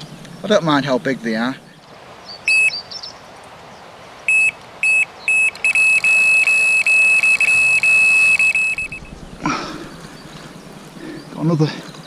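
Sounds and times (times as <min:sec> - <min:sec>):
bite alarm beeping: 0:02.5 - 0:02.8, 0:04.3 - 0:09.2.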